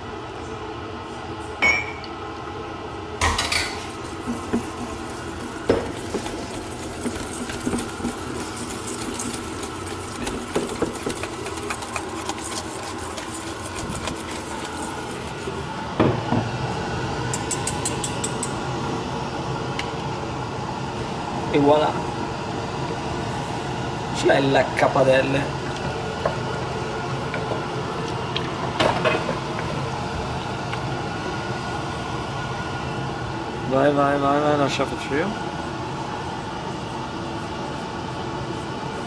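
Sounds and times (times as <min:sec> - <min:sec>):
whisk ticking: 0:04.1 - 0:15.6
whisk clinking on metal bowl: 0:05.8 - 0:15.3.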